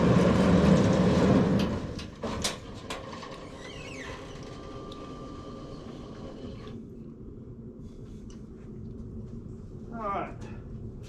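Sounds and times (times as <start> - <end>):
engine running: 0.0 - 6.9.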